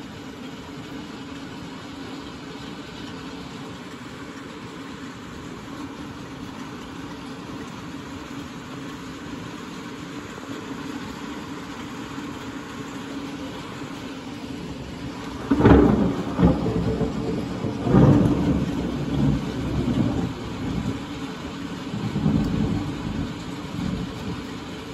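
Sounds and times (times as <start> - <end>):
rain hissing: 0.0 - 24.9
thunder clap and rumble: 15.0 - 24.9.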